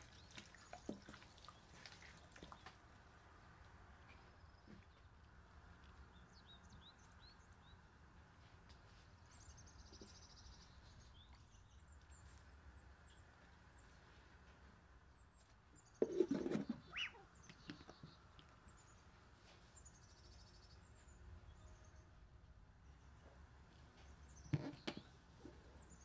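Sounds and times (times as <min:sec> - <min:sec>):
faint bird chirps: 0:15.8 - 0:18.2.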